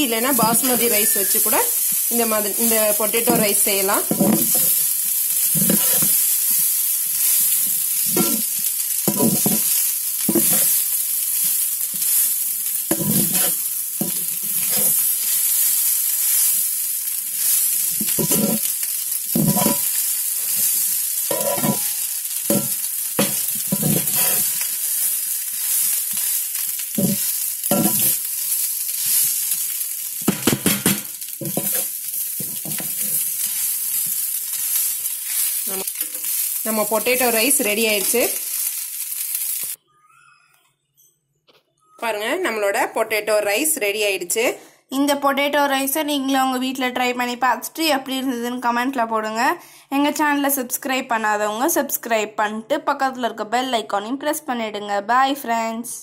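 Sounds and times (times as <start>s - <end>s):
frying sizzle: 0.0s - 39.8s
metal spoon scraping a pan: 0.3s - 16.6s, 17.4s - 26.4s, 27.0s - 29.6s, 30.3s - 38.8s.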